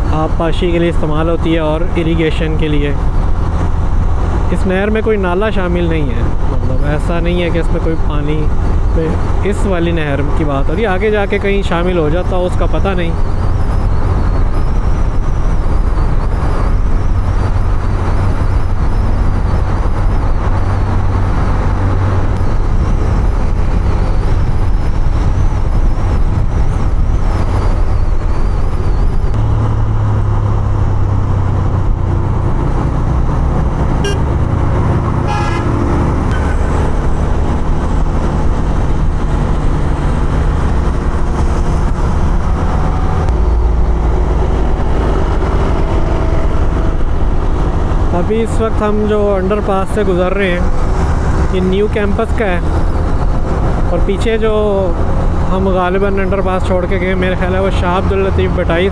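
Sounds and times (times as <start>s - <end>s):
road and wind noise: 0.0s - 58.9s
vehicle horn toot: 34.0s - 34.4s, 35.2s - 37.0s.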